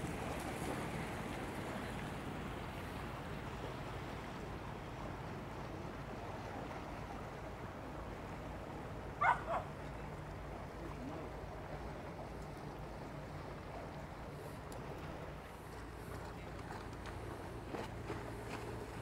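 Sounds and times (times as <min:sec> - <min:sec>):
boat engines humming: 0:00.0 - 0:19.0
dog barking: 0:09.2 - 0:09.7.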